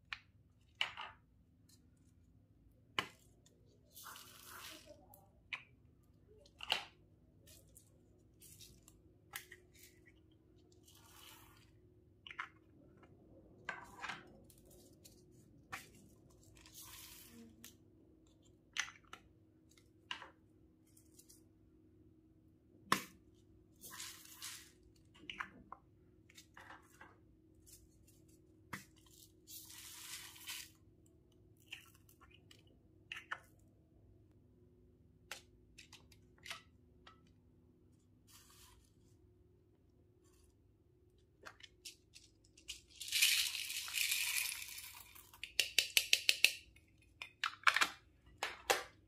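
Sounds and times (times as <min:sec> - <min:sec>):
foam beads rustling: 0:29.1 - 0:30.8, 0:42.8 - 0:45.3
plastic toy pieces clicking: 0:42.6 - 0:48.0.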